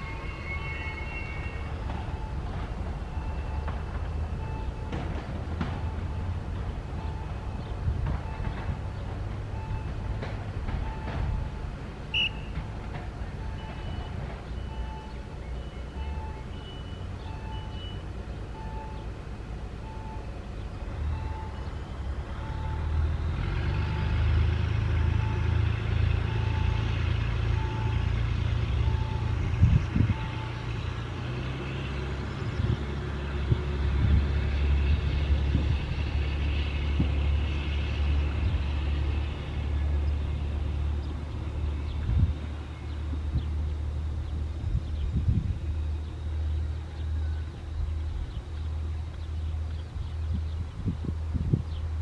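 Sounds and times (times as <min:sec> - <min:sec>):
diesel railcar engine droning: 0:00.0 - 0:52.0
short electronic beeps: 0:12.2 - 0:12.6, 0:13.4 - 0:18.0, 0:18.6 - 0:19.0, 0:21.1 - 0:23.0.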